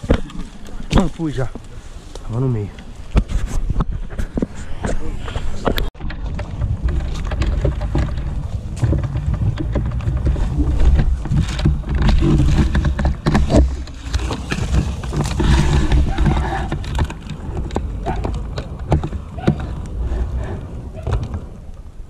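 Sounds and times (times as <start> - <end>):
wind rumble on microphone: 0.0 - 22.0
knocks and clicks: 5.6 - 20.0.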